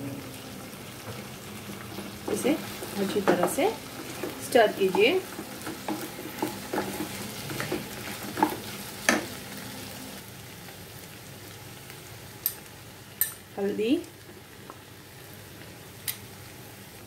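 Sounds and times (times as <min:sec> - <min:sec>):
food sizzling in frying pan: 0:00.0 - 0:17.0
wooden spatula scraping pan: 0:02.3 - 0:08.8.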